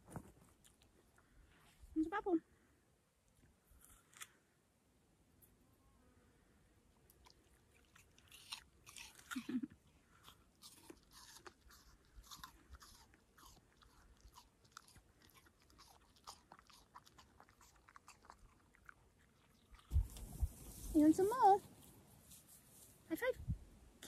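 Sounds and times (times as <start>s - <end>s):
crunchy apple chewing: 3.7s - 4.4s, 7.0s - 20.3s.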